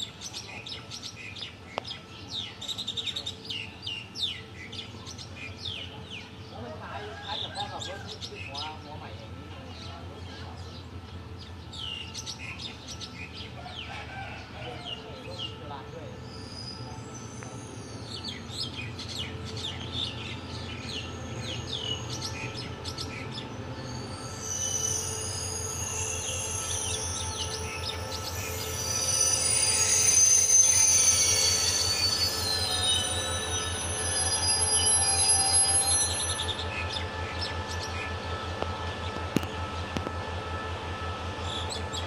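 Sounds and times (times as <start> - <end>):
diesel locomotive engine throb: 0.0 - 42.0
brake squeal: 16.0 - 42.0.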